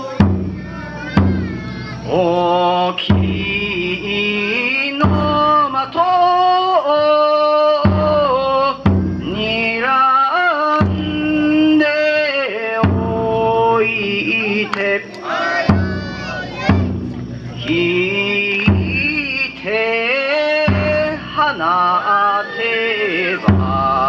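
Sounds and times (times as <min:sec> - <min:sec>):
taiko drum strokes: 0:00.0 - 0:06.6, 0:07.8 - 0:09.9, 0:12.8 - 0:14.4, 0:15.2 - 0:21.8, 0:23.4 - 0:24.0
person chanting in held notes: 0:00.0 - 0:16.8, 0:17.6 - 0:24.0.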